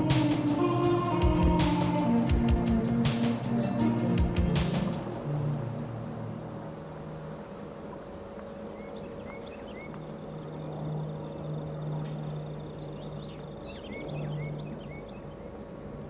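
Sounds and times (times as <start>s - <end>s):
low steady hum: 0.0s - 16.0s
small birds chirping: 7.0s - 16.0s.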